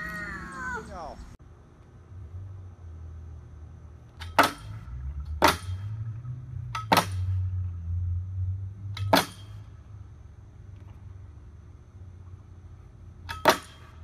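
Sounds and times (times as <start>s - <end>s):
low steady rumble: 0.0s - 14.0s
sharp knocks of metal bar: 4.2s - 4.8s, 5.4s - 5.9s, 6.7s - 7.5s, 8.9s - 9.7s, 13.2s - 14.0s.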